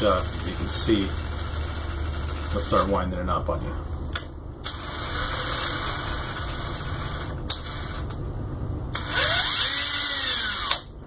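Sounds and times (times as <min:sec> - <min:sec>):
cordless drill whining: 0:09.0 - 0:10.9.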